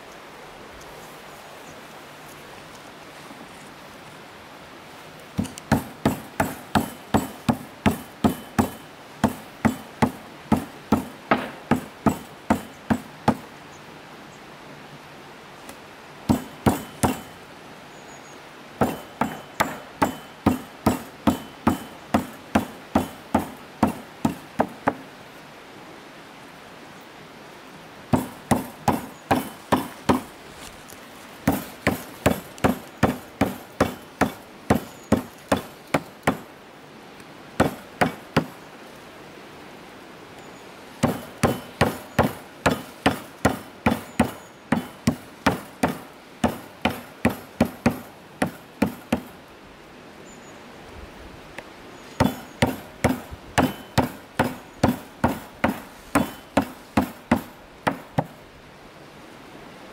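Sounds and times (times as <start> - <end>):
stone pounding meat on wood: 5.4 - 13.1, 18.8 - 25.0, 31.5 - 36.4, 41.0 - 49.3, 52.2 - 58.3.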